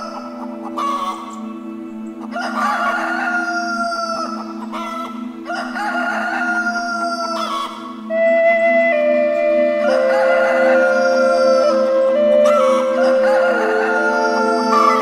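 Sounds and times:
soft background music: 0.0 - 15.0
rooster crowing: 5.5 - 7.7, 9.8 - 11.8, 12.4 - 15.0.

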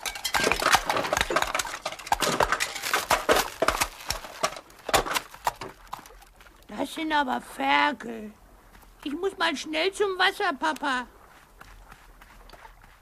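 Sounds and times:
packaging crackling: 0.3 - 6.1.

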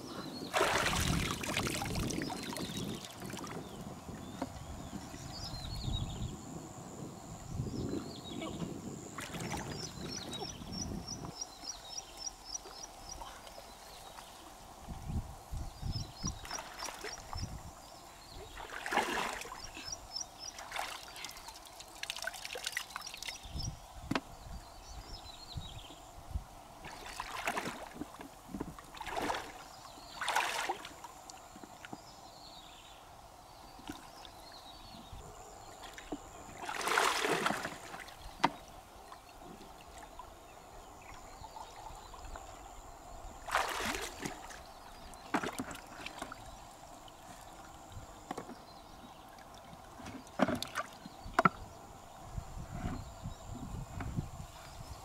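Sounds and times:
water sloshing and splashing: 0.5 - 5.4, 9.1 - 10.5, 16.2 - 17.6, 18.4 - 23.5, 26.8 - 32.0, 35.8 - 40.4, 43.4 - 51.6.

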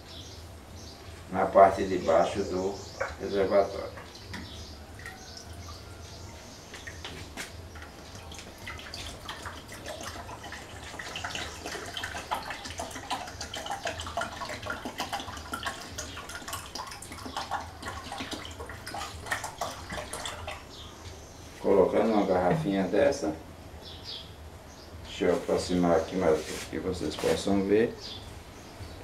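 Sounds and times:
water splashing trickle: 1.9 - 21.4.

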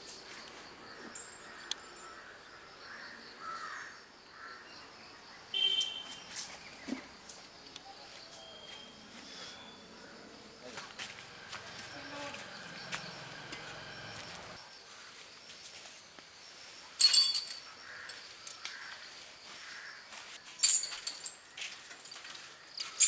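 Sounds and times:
high insect drone: 0.0 - 20.3.

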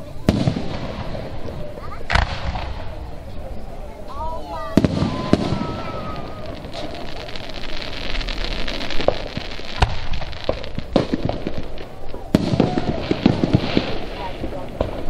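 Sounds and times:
firework booms and pops: 0.0 - 15.0
steady hiss: 0.0 - 15.0.

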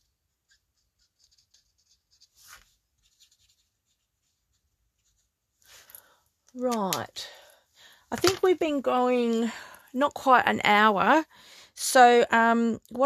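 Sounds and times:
marker scratching on plastic: 0.0 - 5.4.

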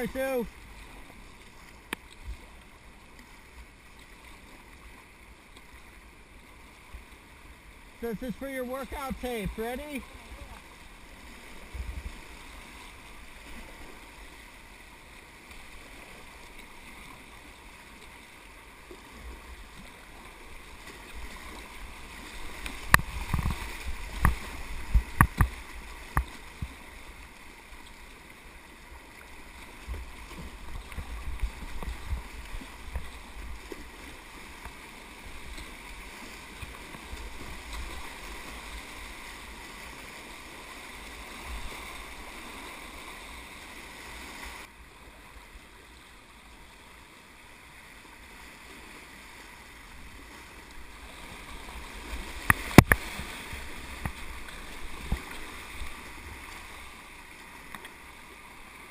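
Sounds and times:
rushing whitewater: 0.0 - 58.9
kayak knocks and splashes: 22.8 - 26.8, 52.4 - 55.4.

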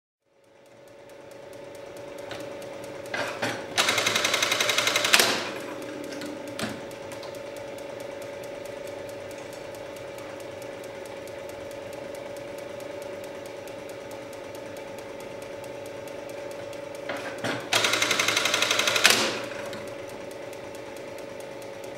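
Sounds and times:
sewing machine motor humming: 0.6 - 21.9
rapid stitching strokes: 3.8 - 5.6, 17.7 - 19.5.

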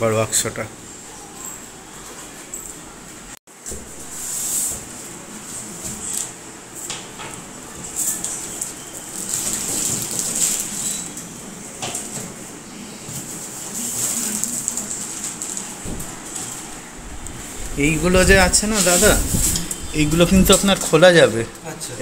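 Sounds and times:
plastic packaging crinkling: 7.9 - 11.2, 13.4 - 21.0
cardboard flaps scraping: 15.4 - 19.8.

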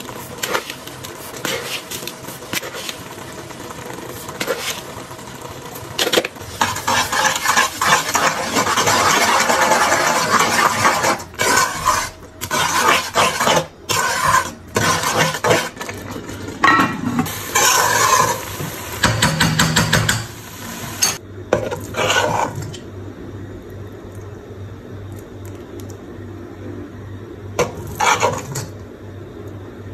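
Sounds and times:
mixture sizzling: 0.0 - 22.8, 27.6 - 28.8
metal spoon scraping pan: 6.4 - 18.5, 27.6 - 28.7.

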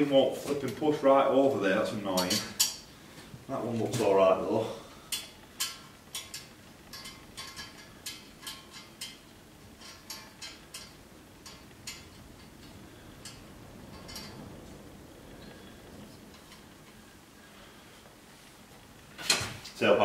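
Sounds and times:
metallic clicks of exhaust pipes: 5.1 - 14.4.

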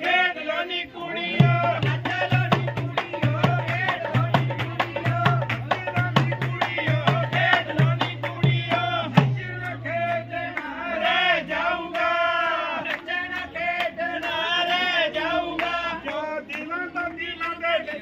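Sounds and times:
person singing folk song: 0.0 - 18.0
booming hand drum beat: 1.4 - 10.1.

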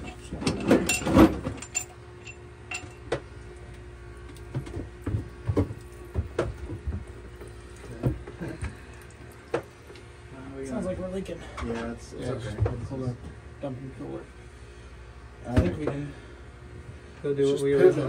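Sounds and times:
metal parts clinking: 0.0 - 3.0
steady low hum: 0.0 - 18.0.

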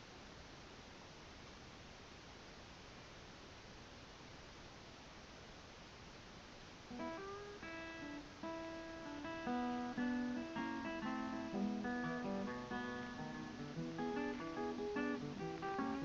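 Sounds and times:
plucked acoustic guitar: 6.9 - 16.0.

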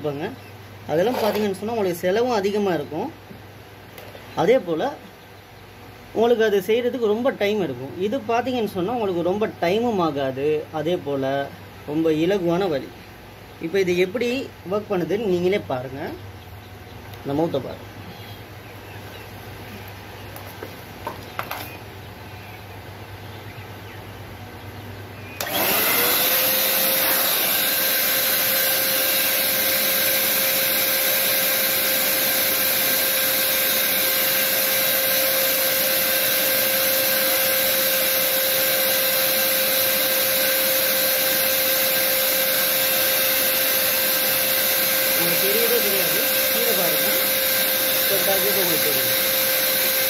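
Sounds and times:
paint sprayer motor whining: 1.0 - 2.1, 21.0 - 21.8, 25.4 - 50.0.

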